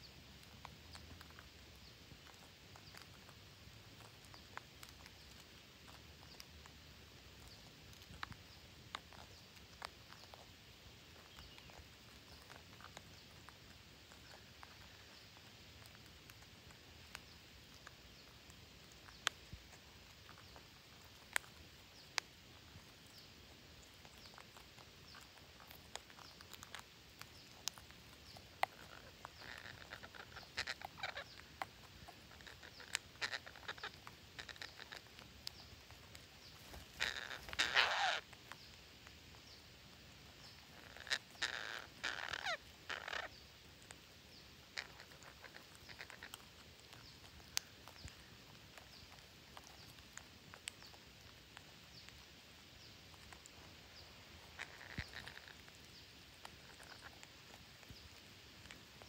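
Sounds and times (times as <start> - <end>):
parakeets squawking: 27.5 - 35.9, 36.5 - 38.3, 40.6 - 43.4, 44.7 - 50.8, 54.0 - 57.9.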